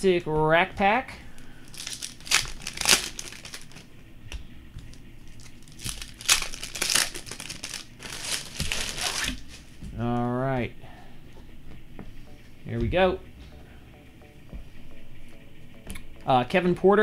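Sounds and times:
plastic wrappers crinkling: 1.6 - 3.9, 4.9 - 9.8
wrappers being torn open: 1.7 - 3.8, 5.4 - 9.6.

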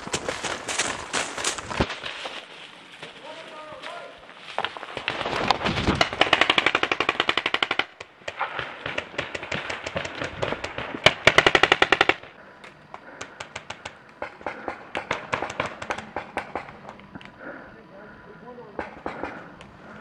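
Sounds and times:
paintball markers firing pops: 6.0 - 17.4.

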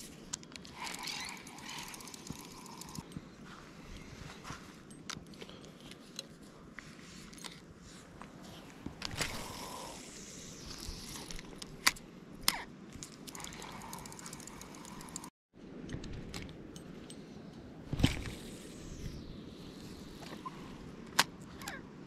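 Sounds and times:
fishing reel clicks and ticks: 0.6 - 3.1, 13.2 - 15.3.

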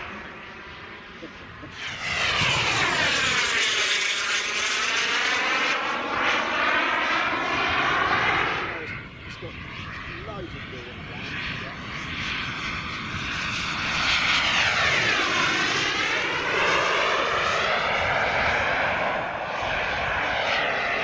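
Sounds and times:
model jet turbine whine: 0.0 - 21.0.

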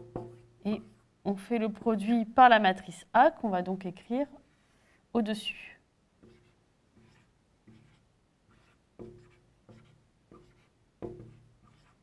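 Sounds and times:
marker writing on whiteboard: 0.0 - 1.0, 6.2 - 12.0.

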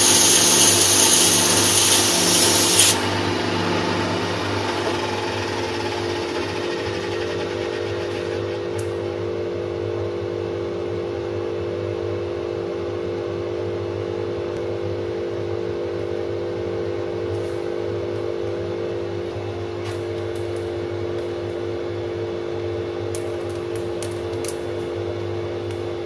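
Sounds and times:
bandsaw motor hum: 0.0 - 10.1.

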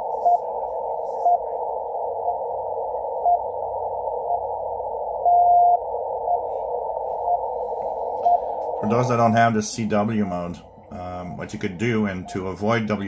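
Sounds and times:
longer radio beep: 0.0 - 3.6, 5.2 - 13.0
static hiss: 6.5 - 13.0.

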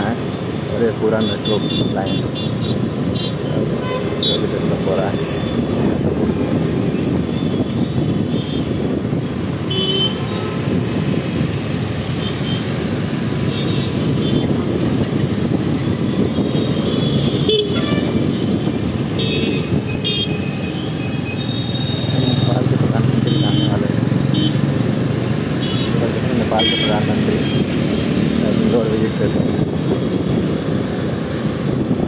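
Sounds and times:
traffic engines and road noise: 0.0 - 32.0
vehicle horn toots: 1.4 - 4.4, 9.7 - 10.6, 16.5 - 18.3.

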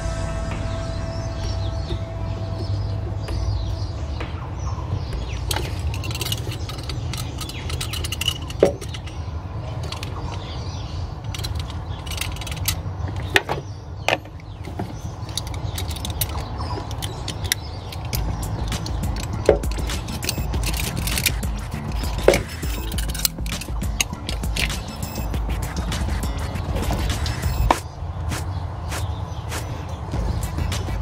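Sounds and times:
low rumble: 0.0 - 6.4
hand tool clicking on hoses: 5.5 - 9.2, 11.2 - 13.4, 14.4 - 29.7.

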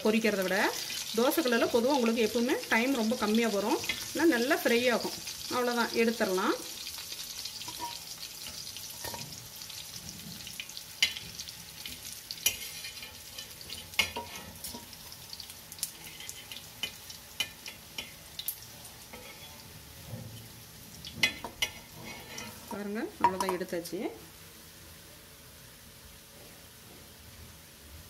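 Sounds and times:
fish sizzling in oil: 0.0 - 24.8
metal spatula scraping griddle: 12.4 - 14.9, 16.0 - 18.2, 19.1 - 20.5, 21.1 - 22.8.

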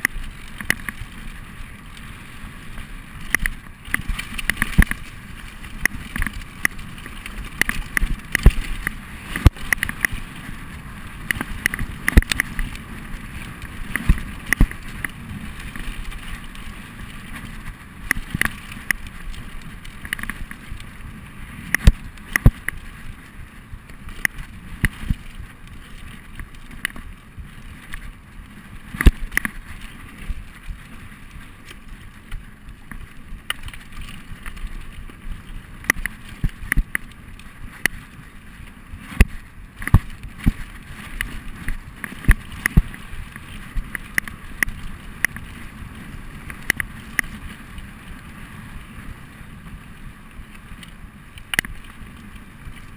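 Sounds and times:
bike knocking and rattling: 0.0 - 52.9
bike tyres on dirt: 0.0 - 52.9.

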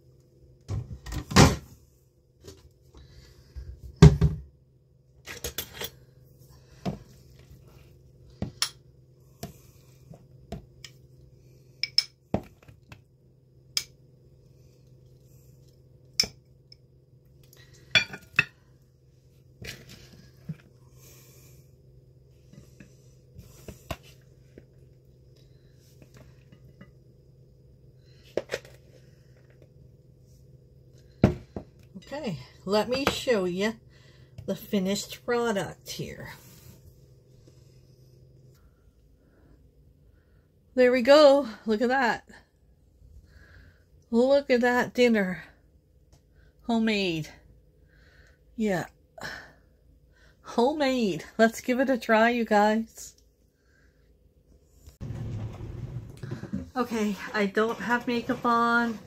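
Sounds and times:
steady low hum: 0.0 - 59.0
dishes and cutlery clinking: 18.0 - 18.5.

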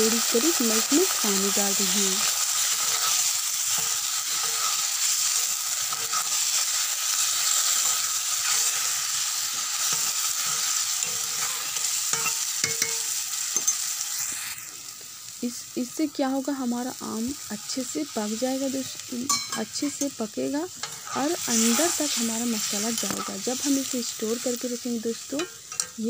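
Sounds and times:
food sizzling in hot oil: 0.0 - 26.0
spatula stirring and scraping: 2.2 - 13.0, 20.8 - 23.9.

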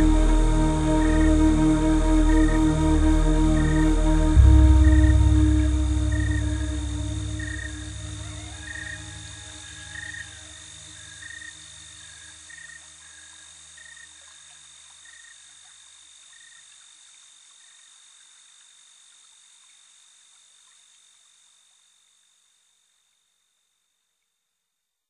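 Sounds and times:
low drone: 0.0 - 12.2
high whine and hiss: 0.0 - 23.0
cricket-like chirps: 0.1 - 23.6.

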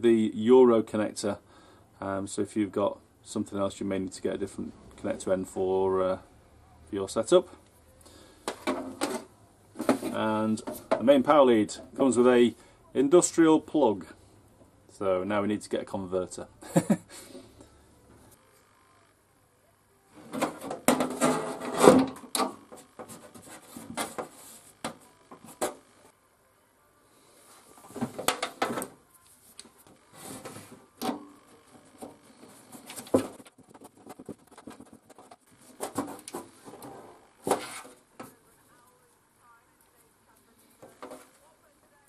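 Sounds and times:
cable rustling: 27.6 - 38.9.

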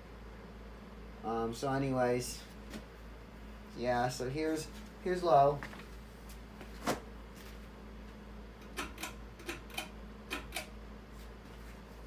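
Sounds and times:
ceiling fan humming: 0.0 - 12.0.

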